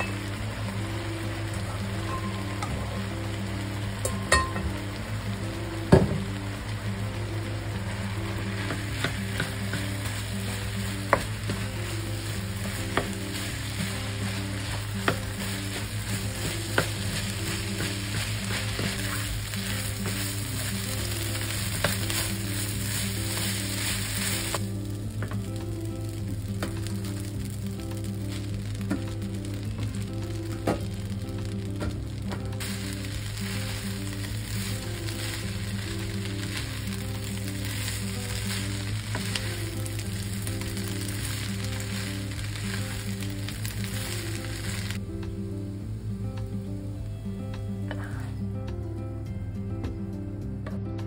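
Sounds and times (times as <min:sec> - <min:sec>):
rice sizzling in a frying pan: 0:00.0 - 0:48.4
background music: 0:00.0 - 0:51.0
spatula knocking on pan: 0:14.6 - 0:19.3.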